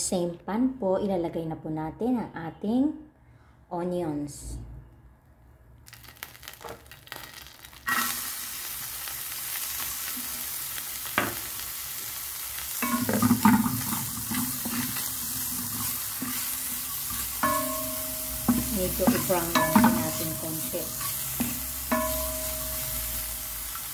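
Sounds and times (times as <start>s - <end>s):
onion sizzling in oil: 5.9s - 23.9s
spatula scraping pan: 12.8s - 22.6s.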